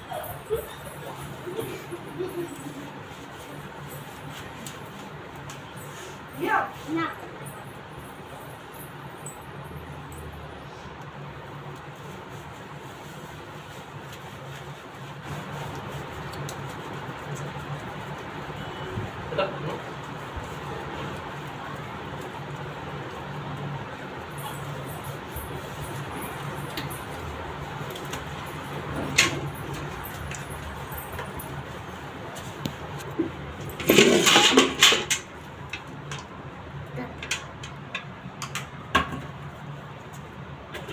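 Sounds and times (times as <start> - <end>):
hands rubbing wet fur: 11.4 - 29.0.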